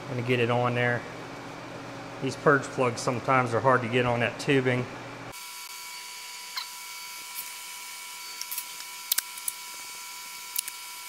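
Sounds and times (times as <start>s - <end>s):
tape handling crackles and clicks: 8.4s - 9.6s, 10.5s - 10.8s.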